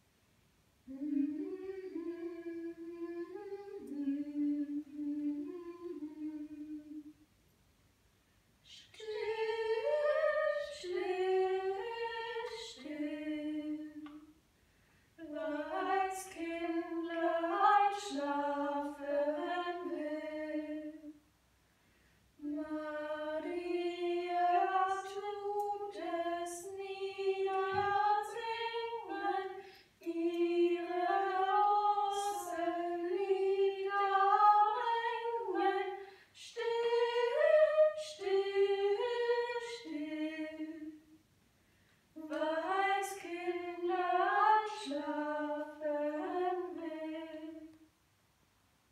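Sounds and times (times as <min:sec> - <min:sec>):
woman singing unaccompanied: 0:00.9 - 0:07.1, 0:08.7 - 0:14.3, 0:15.2 - 0:21.1, 0:22.4 - 0:41.0, 0:42.2 - 0:47.7.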